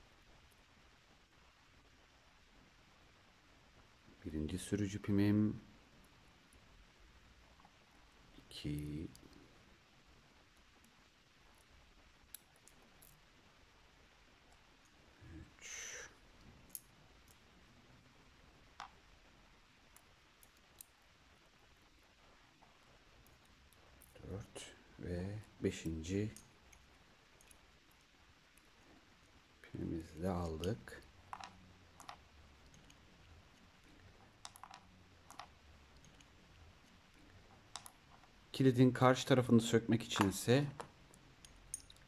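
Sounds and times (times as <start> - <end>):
faint metal clicks: 25.4 - 29.4, 40.0 - 42.0.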